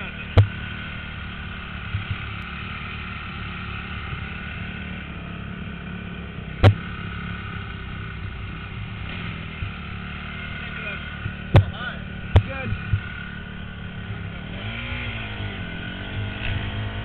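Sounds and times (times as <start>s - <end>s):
dirt bike engine idling: 0.0s - 17.0s
sharp knock: 6.6s - 6.8s, 11.5s - 13.0s.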